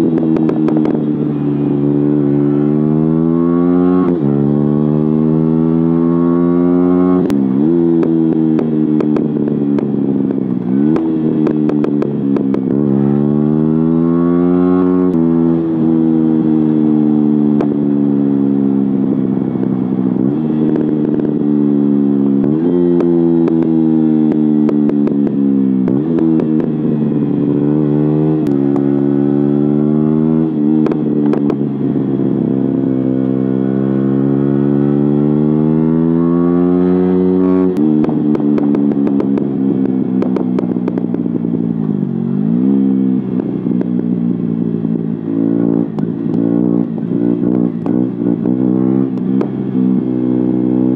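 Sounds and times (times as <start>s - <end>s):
motorcycle engine revving: 0.0s - 50.9s
exhaust pops: 7.2s - 12.8s, 30.8s - 31.7s, 37.7s - 42.0s, 43.3s - 49.6s.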